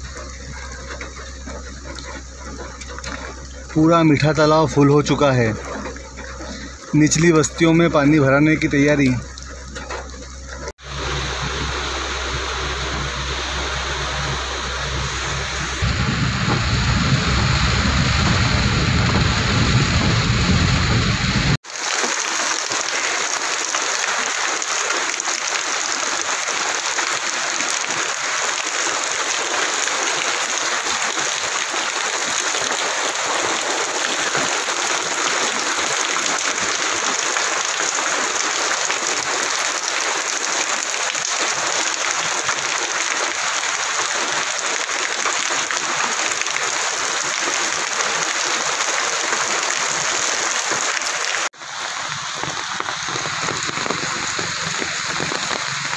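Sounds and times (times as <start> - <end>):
heavy rain on water and pavement: 0.0 - 55.9.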